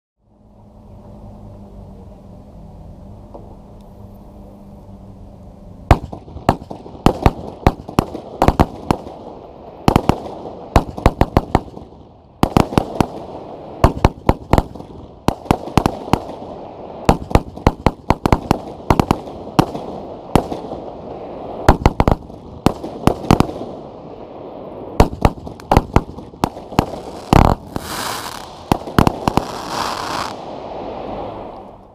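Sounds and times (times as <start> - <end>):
dense crackling hiss: 0.2 - 31.9
firework launch pops and bursts: 5.9 - 23.9, 24.9 - 31.9.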